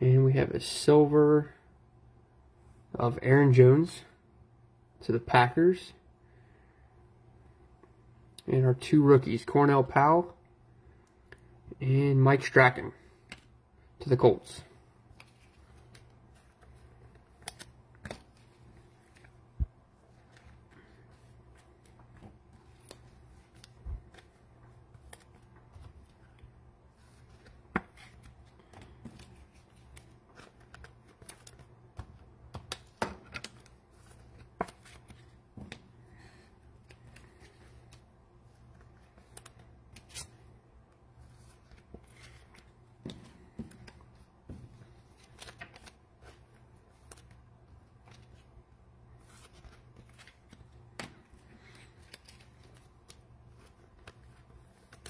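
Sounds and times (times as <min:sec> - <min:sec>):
low steady hum: 0:00.0 - 0:55.0
cards clicking and rustling: 0:15.1 - 0:19.4, 0:20.0 - 0:40.4, 0:41.3 - 0:47.4, 0:49.2 - 0:55.0.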